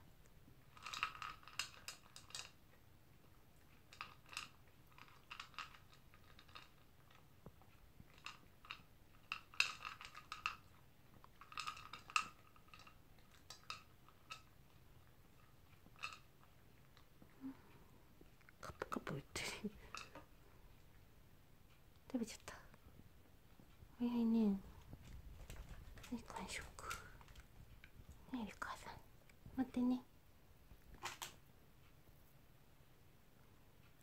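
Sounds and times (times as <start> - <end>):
dog crunchy chewing: 3.6 - 17.2, 24.7 - 28.7.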